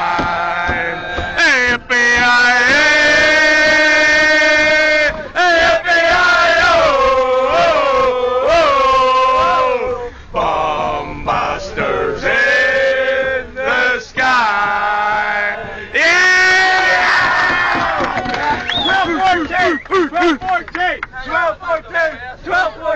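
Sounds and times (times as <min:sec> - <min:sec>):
men singing chant-like: 0:00.0 - 0:18.0.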